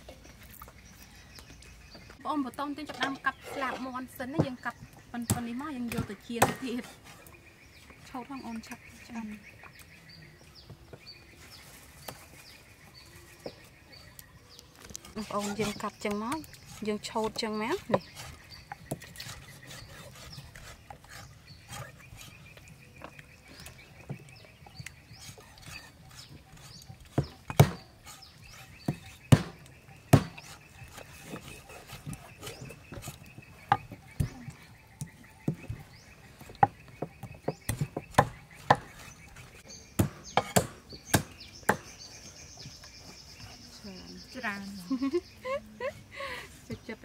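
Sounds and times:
cleavers chopping on wooden blocks: 4.3s - 6.9s, 15.0s - 42.8s.

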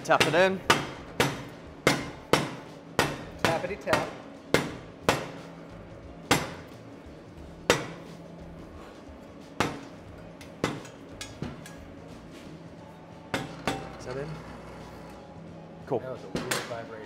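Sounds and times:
hammer tapping steel: 0.0s - 5.5s, 7.6s - 8.2s, 9.6s - 11.9s.

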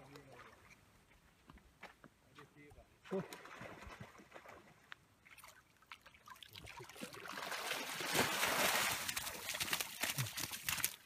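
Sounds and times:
water splashing and streaming: 3.0s - 11.0s.

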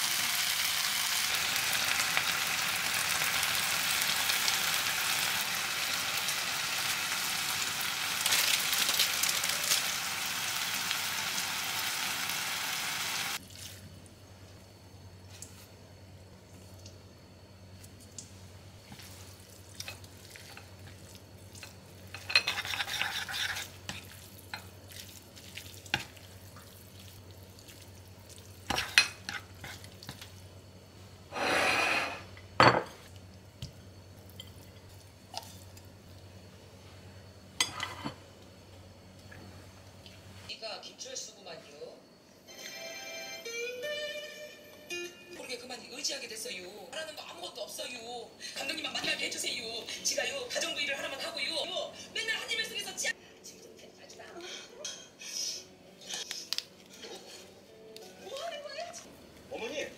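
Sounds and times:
dishware clatter: 31.6s - 33.0s
chopsticks stirring noodles: 56.0s - 58.4s.

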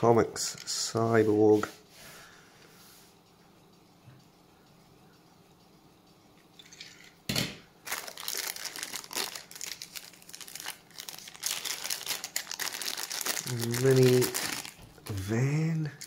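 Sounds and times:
plastic bag crinkling: 7.8s - 15.3s.

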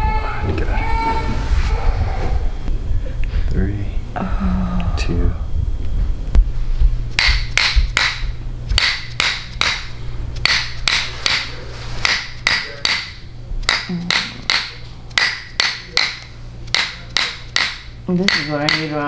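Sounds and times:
low steady hum: 0.0s - 19.0s
mallet tapping steel: 7.2s - 19.0s.

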